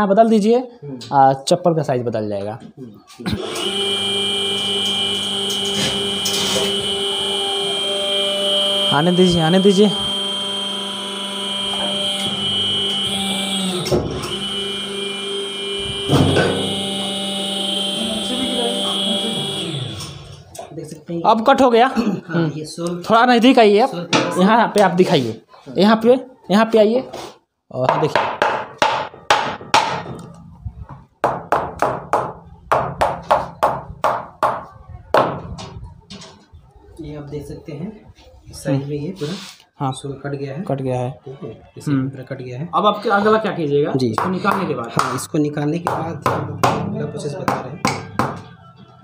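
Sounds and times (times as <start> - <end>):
cutting press humming: 3.3 - 20.6
hammer tapping on steel: 47.5 - 48.5.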